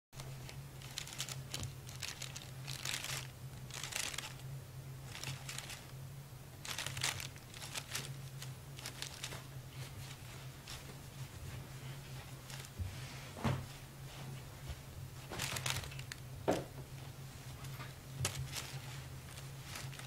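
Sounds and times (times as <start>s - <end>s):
plastic bag crinkling: 0.2s - 5.9s, 6.6s - 10.9s, 12.2s - 12.8s, 15.2s - 16.3s, 17.7s - 20.0s.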